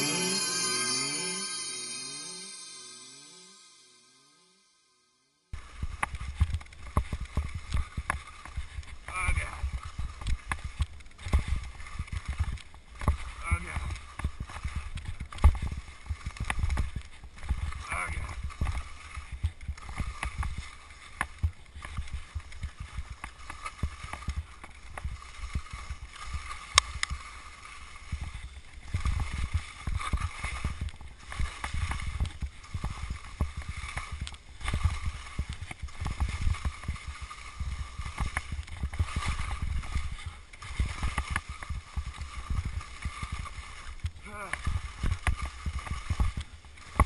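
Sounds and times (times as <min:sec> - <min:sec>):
skis scraping over icy snow: 0:00.0 - 0:04.0, 0:05.6 - 0:47.0.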